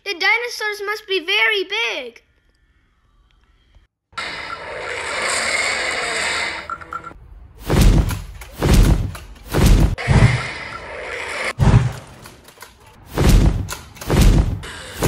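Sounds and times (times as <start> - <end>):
dinosaur roar: 4.6 - 6.6
heavy giant footsteps: 7.6 - 10.4, 13.1 - 14.7.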